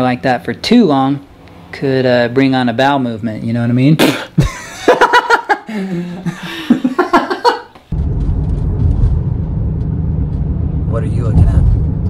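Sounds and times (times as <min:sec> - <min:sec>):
woman laughing: 0:04.4 - 0:07.8.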